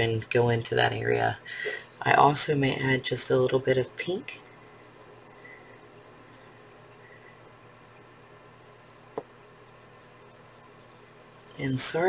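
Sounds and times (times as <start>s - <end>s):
pencil scratching on paper: 2.7s - 8.3s, 9.7s - 12.0s.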